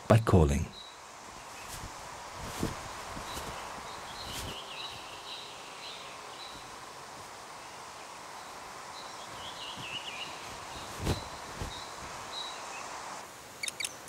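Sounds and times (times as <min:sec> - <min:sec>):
steady forest hiss: 0:00.0 - 0:14.0
high bird chirps: 0:13.6 - 0:14.0.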